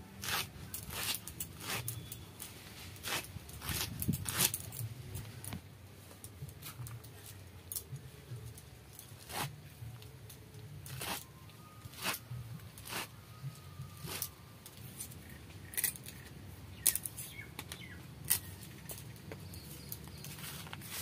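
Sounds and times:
knife chopping leaves on a mat: 0.2 - 4.9, 9.2 - 9.6, 10.9 - 11.3, 11.9 - 14.4.

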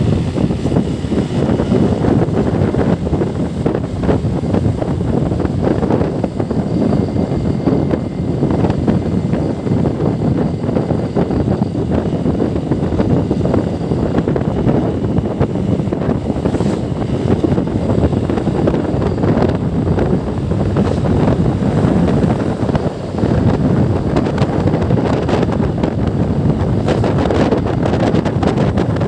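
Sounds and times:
motorcycle engine running: 0.0 - 29.0
wind buffeting microphone: 0.0 - 29.0.

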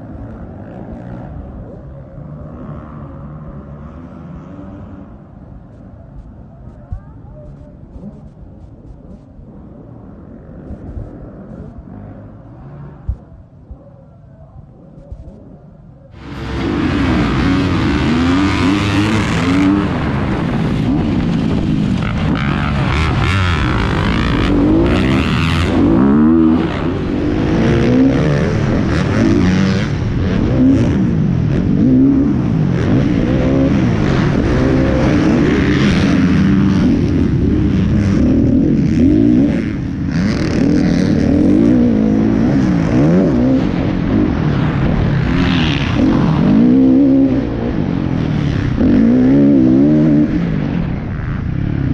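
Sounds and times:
motocross bike engine revving: 16.2 - 51.9.

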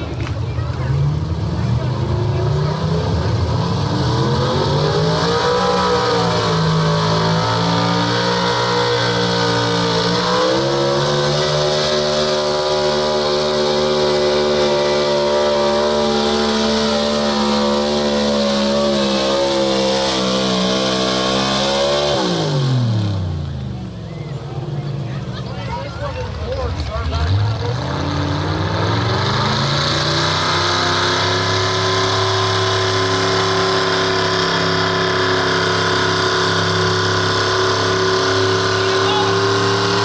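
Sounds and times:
truck engine at full throttle: 0.0 - 40.0.

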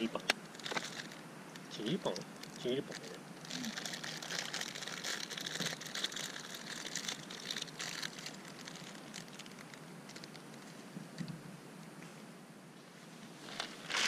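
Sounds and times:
plastic bag crinkling: 0.5 - 1.2, 1.8 - 10.8.

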